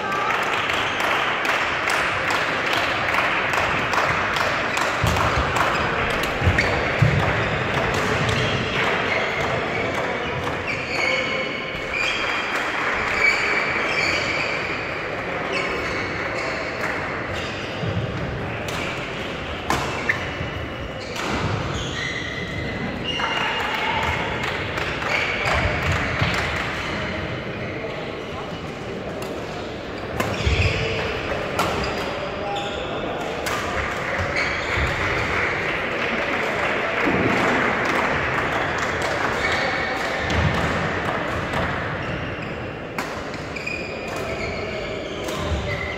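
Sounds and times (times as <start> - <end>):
shoes squeaking on court floor: 4.7 - 12.3, 13.2 - 14.7, 19.4 - 23.4, 29.5 - 33.2, 34.0 - 35.0, 41.9 - 45.9
rackets striking shuttlecock: 45.2 - 45.8.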